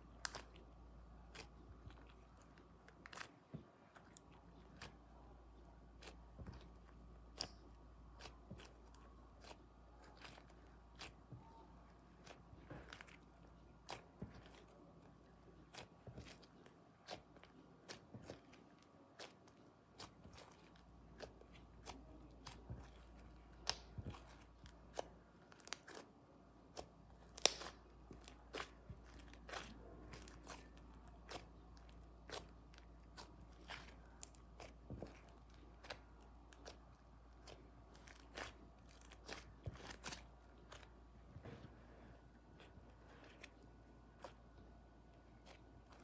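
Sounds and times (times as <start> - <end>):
slime crackling and popping: 0.1 - 0.6, 5.9 - 26.1, 26.7 - 40.9.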